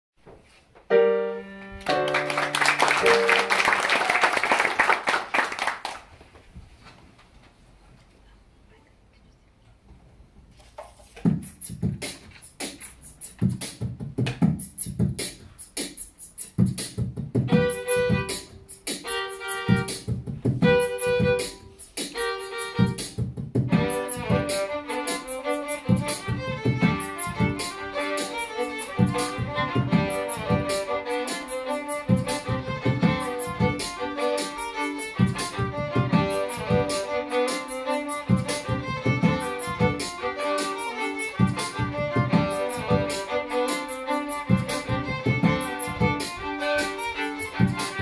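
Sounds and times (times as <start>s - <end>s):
beatboxed drum rhythm: 11.0s - 48.0s
violins playing fiddle melody: 17.5s - 48.0s.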